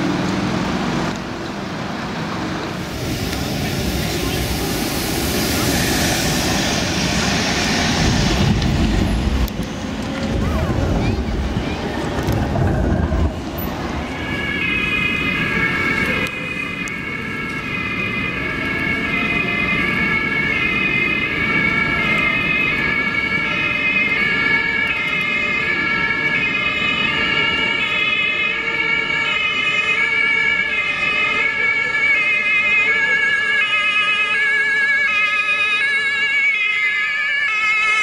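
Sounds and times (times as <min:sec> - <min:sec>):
low traffic noise: 0:00.0 - 0:38.0
two-tone emergency sirens: 0:02.6 - 0:38.0.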